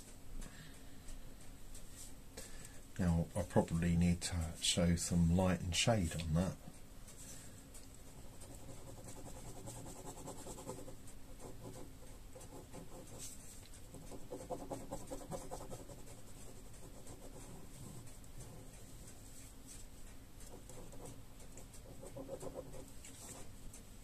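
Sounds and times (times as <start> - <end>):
pen scratching on paper: 8.1 - 18.8, 20.4 - 23.5.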